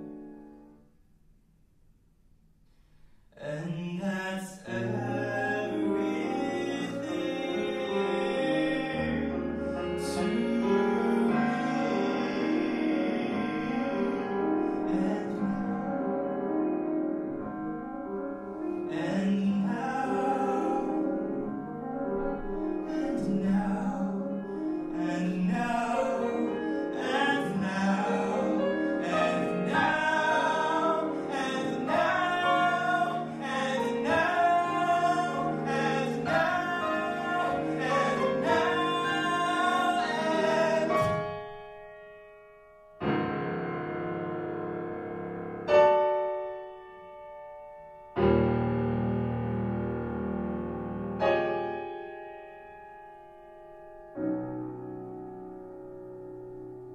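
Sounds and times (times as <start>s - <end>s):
grand piano: 0.0s - 56.9s
man singing: 3.4s - 16.0s, 18.8s - 21.4s, 22.7s - 41.4s.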